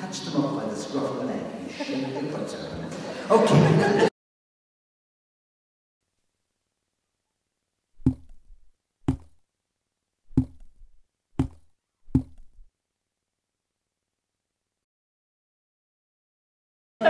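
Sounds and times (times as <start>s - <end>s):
dull knocks with low rumble: 8.0s - 9.4s, 10.3s - 12.7s.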